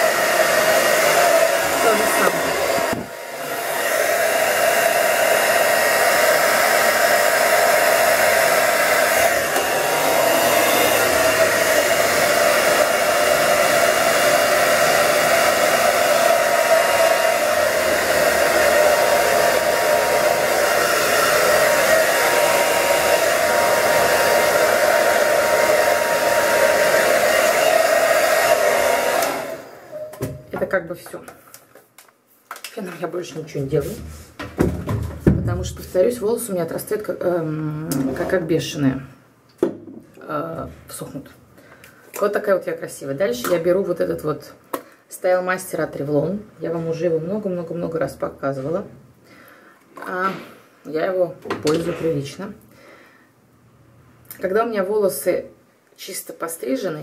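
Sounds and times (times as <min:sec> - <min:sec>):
hair dryer running: 0:00.0 - 0:30.4.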